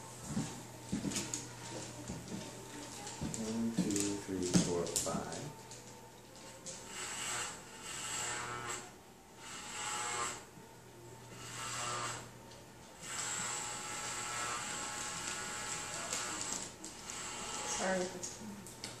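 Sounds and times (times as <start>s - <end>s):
electric hair clippers buzzing: 6.8s - 10.6s, 11.2s - 18.3s.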